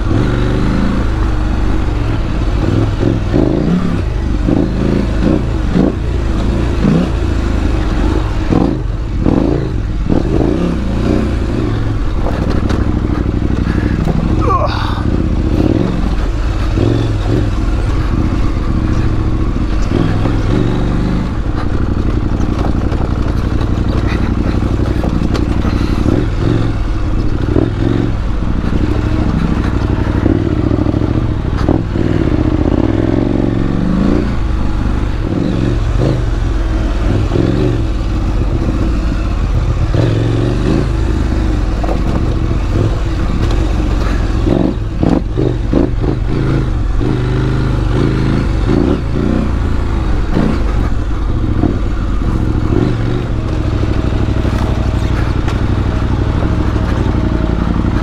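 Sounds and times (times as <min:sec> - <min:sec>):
motorcycle engine running: 0:00.0 - 0:58.0
rocks knocking under wheels: 0:21.5 - 0:25.9.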